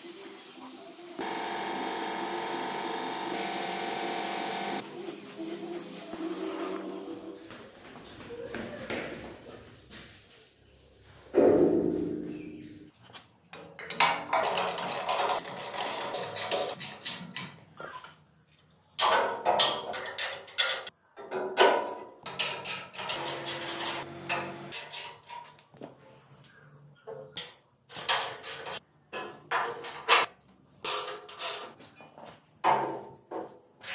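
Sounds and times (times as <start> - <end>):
metal clanks and rattles: 19.0 - 25.6.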